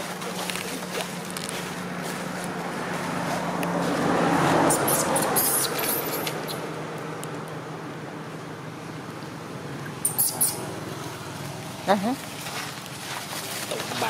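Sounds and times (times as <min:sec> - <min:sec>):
vehicle passing by: 0:00.0 - 0:14.0.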